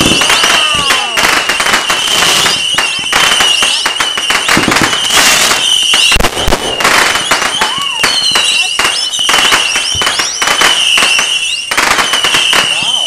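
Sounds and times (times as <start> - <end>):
fireworks crackling pops: 0.0 - 13.0
fireworks whistles: 0.0 - 13.0
deep firework boom: 4.5 - 8.4.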